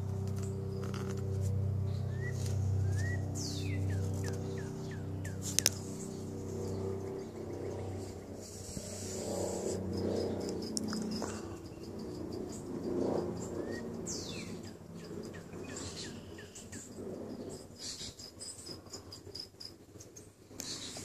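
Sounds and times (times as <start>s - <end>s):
insects chirping: 0.2s - 21.0s
low rubbing noises: 3.8s - 15.2s.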